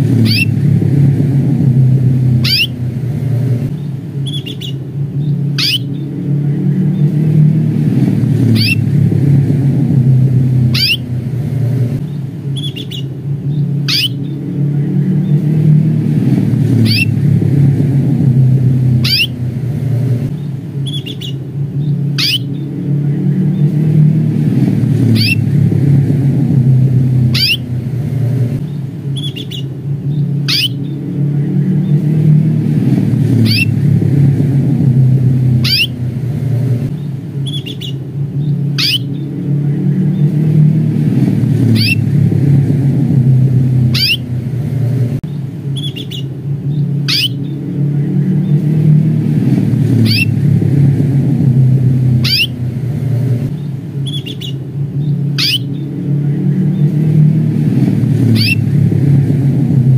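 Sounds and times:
steady low rumble: 0:00.0 - 0:59.9
canary contact calls: 0:04.2 - 0:04.8, 0:05.6 - 0:05.9, 0:12.6 - 0:13.1, 0:13.9 - 0:14.2, 0:22.2 - 0:22.5, 0:30.5 - 0:30.8, 0:38.8 - 0:39.1, 0:43.9 - 0:44.2, 0:47.1 - 0:47.4, 0:52.2 - 0:52.6, 0:55.4 - 0:55.7.

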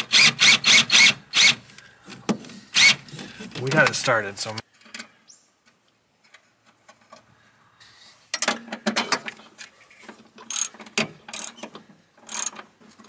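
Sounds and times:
ratchet wrench clicking: 0:10.5 - 0:10.7, 0:11.3 - 0:11.6, 0:12.3 - 0:12.6.

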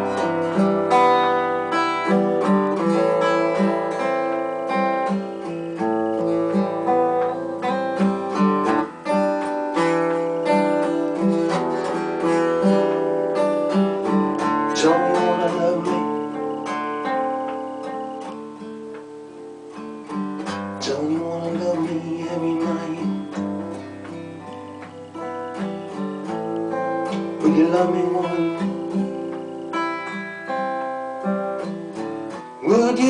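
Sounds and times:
acoustic guitar playing chords: 0:00.0 - 0:33.0.

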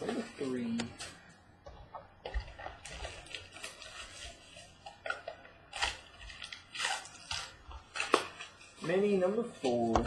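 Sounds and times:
foil packs crinkling: 0:02.2 - 0:09.9.

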